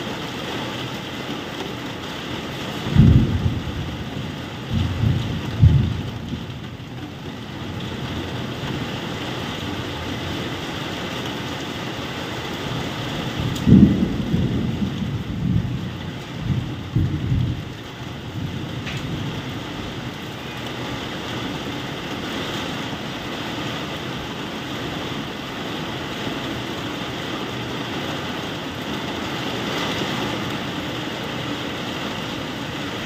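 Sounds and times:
heavy rain hiss: 0:00.0 - 0:33.0
thunder rumbling: 0:02.7 - 0:10.6, 0:12.7 - 0:31.1.

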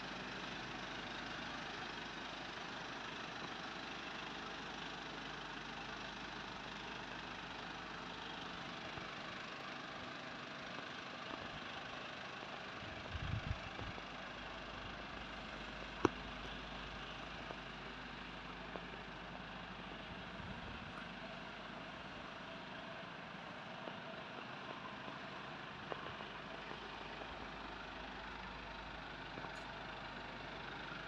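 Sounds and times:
diesel engine idling: 0:00.0 - 0:31.0.

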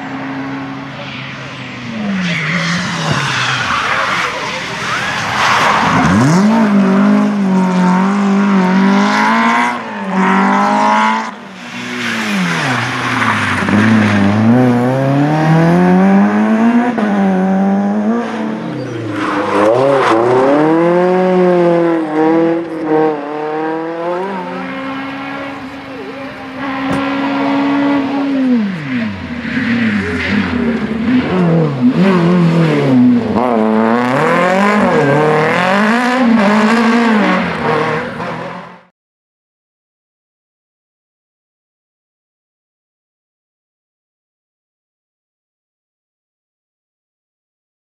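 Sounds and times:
rally cars accelerating past: 0:00.0 - 0:38.9.

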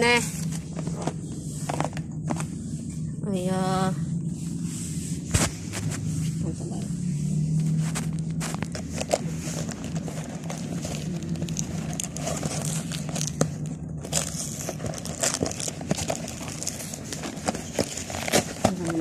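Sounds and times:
low hum: 0:00.0 - 0:19.0
plastic packaging crinkling: 0:07.7 - 0:19.0.

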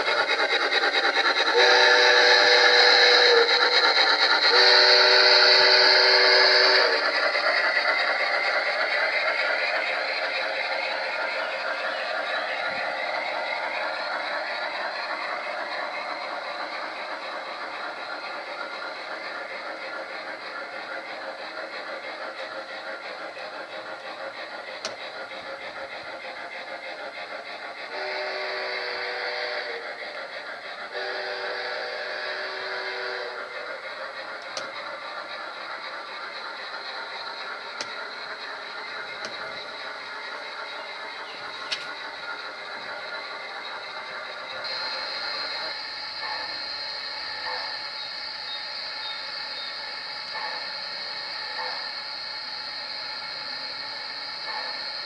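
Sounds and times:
model train wheels on rails: 0:00.0 - 0:55.0
electronic train whistle chord: 0:01.5 - 0:03.4, 0:04.4 - 0:07.0, 0:27.9 - 0:29.8, 0:30.9 - 0:33.4
sharp click: 0:24.8 - 0:25.0, 0:34.4 - 0:34.8, 0:37.8 - 0:38.0.

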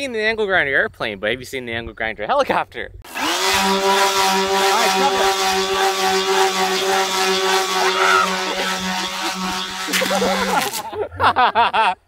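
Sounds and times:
angle grinder motor whining: 0:03.1 - 0:10.9
rotor blades rushing: 0:03.1 - 0:11.0.

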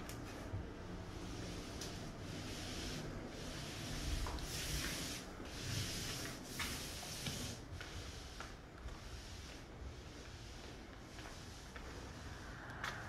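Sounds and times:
footsteps scuffing on paper: 0:04.0 - 0:05.3, 0:06.0 - 0:09.7.

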